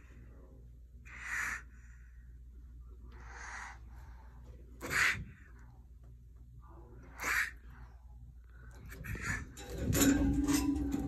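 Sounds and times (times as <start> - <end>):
iguana hissing: 1.1 - 1.7, 3.2 - 3.8, 4.8 - 5.4, 7.1 - 7.6.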